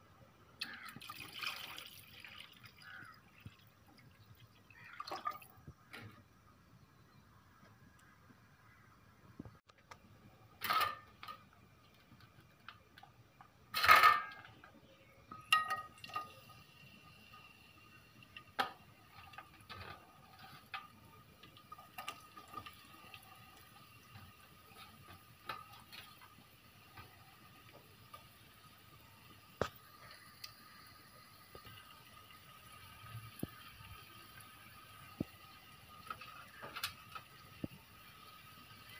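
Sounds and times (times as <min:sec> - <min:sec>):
metal kitchenware clanking: 0:13.7 - 0:14.7, 0:15.3 - 0:16.4.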